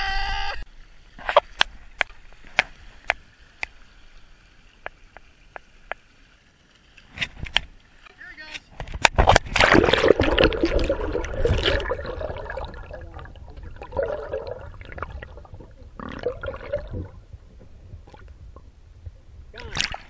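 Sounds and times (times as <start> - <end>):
muffled underwater gurgling: 9.8 - 18.7.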